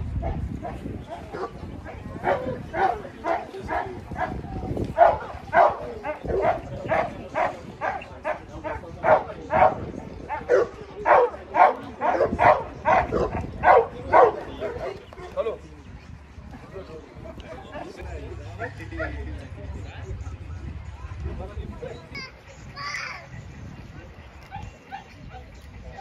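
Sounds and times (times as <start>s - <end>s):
dog barking: 2.2s - 4.4s, 5.0s - 14.8s.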